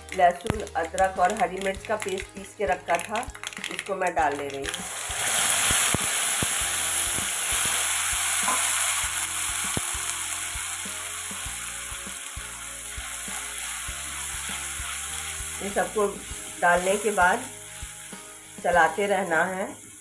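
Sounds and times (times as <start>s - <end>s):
paste sizzling in hot oil: 0.0s - 20.0s
small oil pops: 0.3s - 4.8s, 5.7s - 6.6s.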